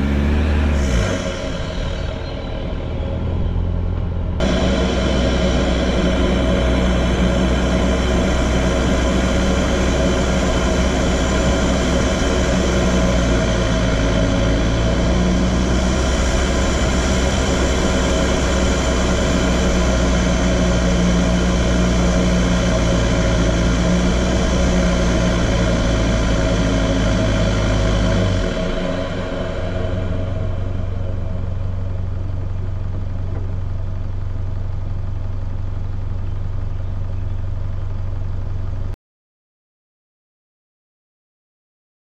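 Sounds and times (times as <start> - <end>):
tyres on gravel road noise: 0.0 - 38.9
vehicle engine drone: 0.0 - 39.0.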